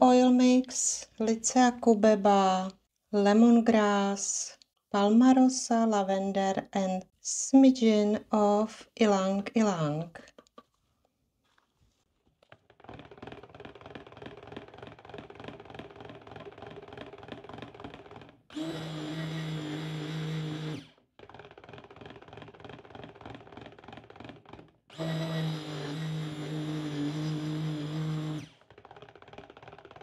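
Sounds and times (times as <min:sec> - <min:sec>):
blender rattling and sloshing: 0:11.5 - 0:30.0
stick blender motor humming: 0:12.6 - 0:30.0.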